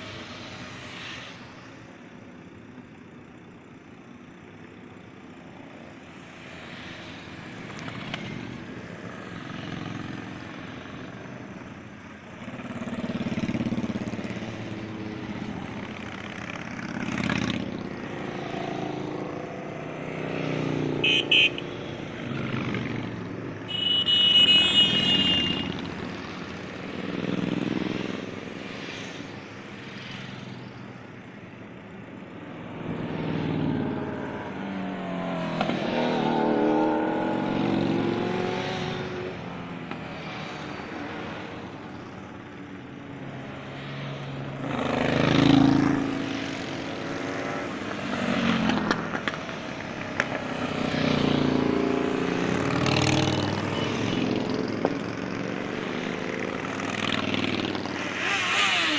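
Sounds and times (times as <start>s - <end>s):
motorcycles riding past: 5.8s - 58.9s
horn toot: 21.0s - 21.7s, 23.7s - 25.9s.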